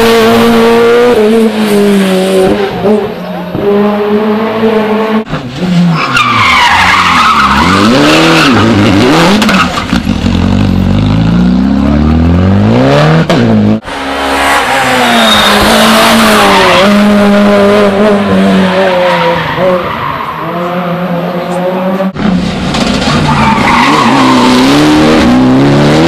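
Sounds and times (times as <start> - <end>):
rally car engines revving: 0.0 - 26.0
tyres squealing on tarmac: 5.8 - 8.8, 14.4 - 17.0, 23.0 - 24.8.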